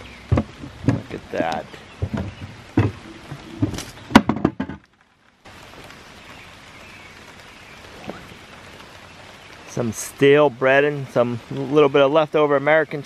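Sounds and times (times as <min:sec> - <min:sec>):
sharp knocks and thuds: 0:00.0 - 0:04.9
steady rain: 0:00.0 - 0:13.0.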